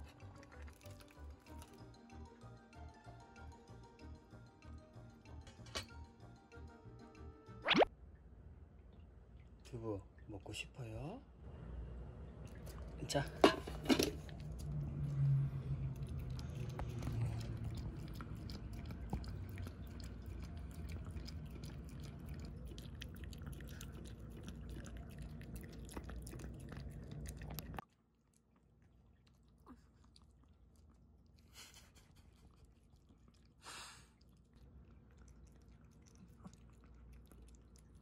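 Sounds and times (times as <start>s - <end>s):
dog chewing wet food: 0.0s - 1.9s, 13.8s - 31.6s, 32.2s - 38.0s.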